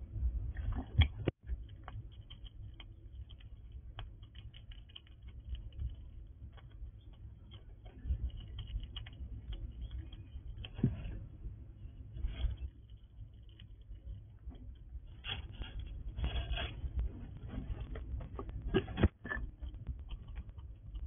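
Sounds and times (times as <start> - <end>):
squirrel cracking seeds: 1.6 - 10.8.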